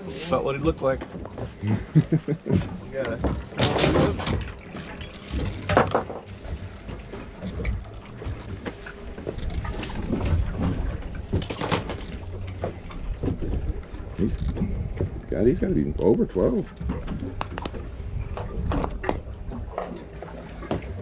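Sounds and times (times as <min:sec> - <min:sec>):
boat low rumble: 0:00.0 - 0:21.0
knocks and rustles on deck: 0:02.5 - 0:09.4.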